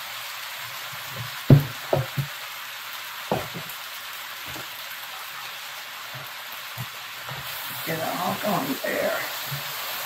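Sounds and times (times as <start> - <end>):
food sizzling in a skillet: 0.0 - 10.0
plastic spatula knocking on pan: 1.2 - 2.3, 3.3 - 3.7.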